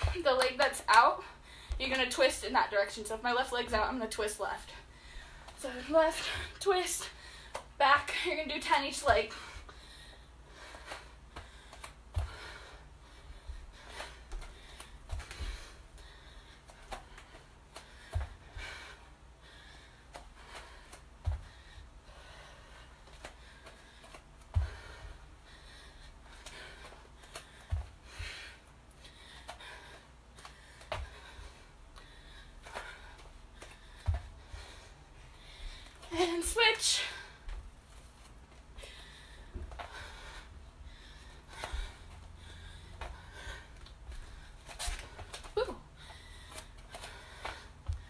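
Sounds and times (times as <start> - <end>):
heavy breathing: 4.7 - 37.6, 38.2 - 48.0
feet thudding on exercise mat: 24.0 - 25.2, 32.7 - 34.8.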